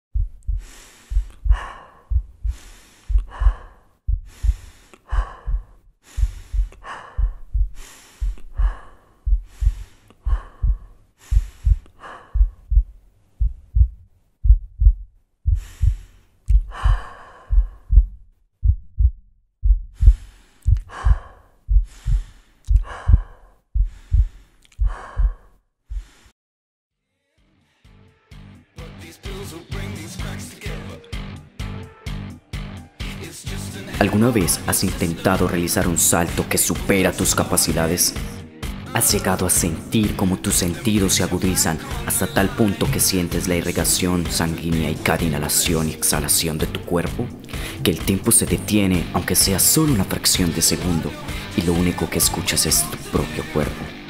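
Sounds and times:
heartbeat double thump: 0.1s - 26.1s
deep breathing: 0.2s - 26.4s, 47.4s - 47.8s, 51.2s - 51.6s.

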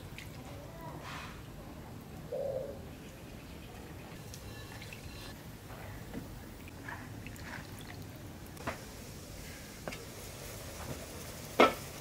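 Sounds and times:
water splashes and drips: 0.0s - 0.6s, 6.5s - 8.8s.

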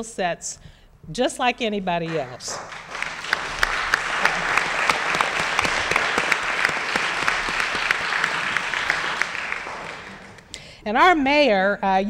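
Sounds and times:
audience applauding: 2.1s - 10.5s.

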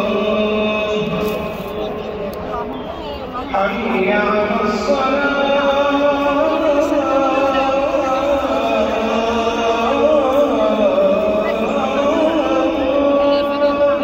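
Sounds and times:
person chanting melody: 3.5s - 14.0s.

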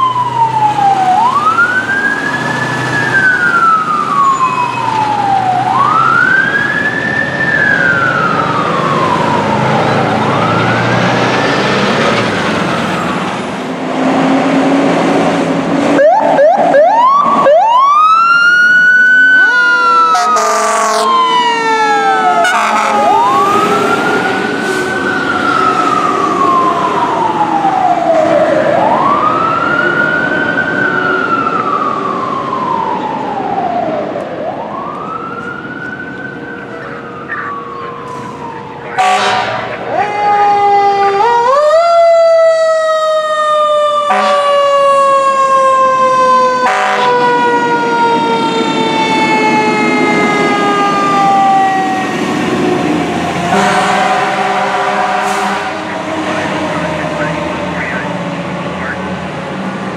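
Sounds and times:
fire truck siren wailing: 0.0s - 59.9s
horn blast: 20.1s - 21.2s, 22.4s - 23.2s, 39.0s - 39.8s, 44.1s - 44.5s, 46.6s - 47.2s, 53.5s - 58.0s.

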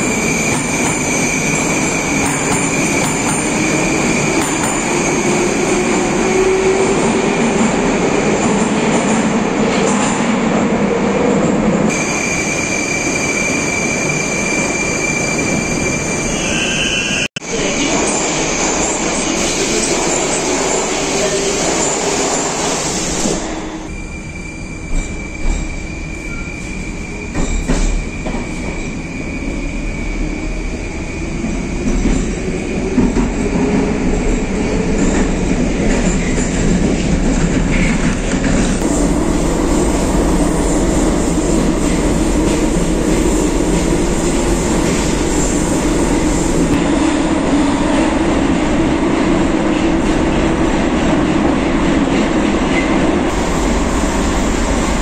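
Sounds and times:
train wheel and running noise: 0.0s - 10.6s, 17.5s - 55.0s
subway traction whine: 0.0s - 55.0s.

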